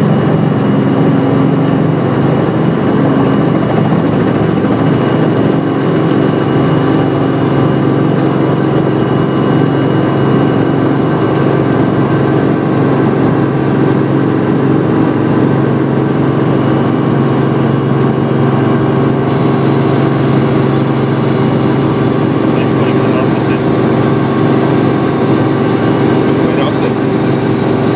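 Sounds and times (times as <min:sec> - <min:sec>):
helicopter engine and rotor: 0:00.0 - 0:27.9.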